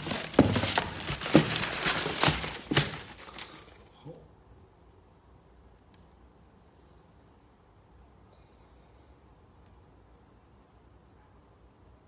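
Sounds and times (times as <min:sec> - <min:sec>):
tissue paper crinkling: 0:00.0 - 0:03.9.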